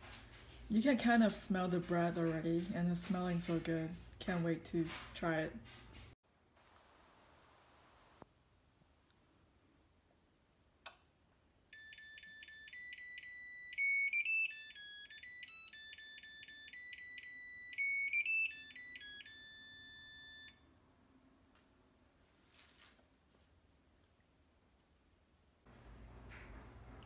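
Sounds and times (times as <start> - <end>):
bread maker beeping tune: 11.8 - 20.7.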